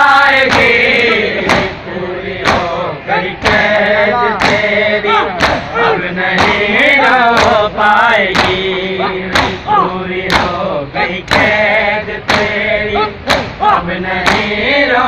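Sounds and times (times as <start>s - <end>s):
group chanting a lament: 0.0s - 15.0s
hands slapping chests: 4.4s - 4.7s, 5.4s - 5.8s, 8.4s - 8.6s, 9.4s - 9.6s, 10.3s - 10.6s, 12.3s - 12.5s, 13.3s - 13.6s, 14.3s - 14.5s.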